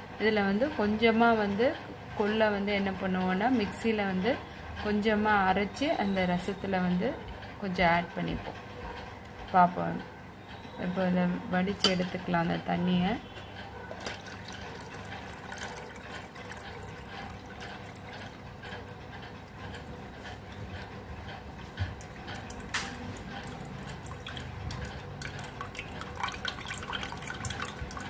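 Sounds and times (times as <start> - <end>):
water trickling and splashing: 13.9 - 21.0, 21.8 - 28.0.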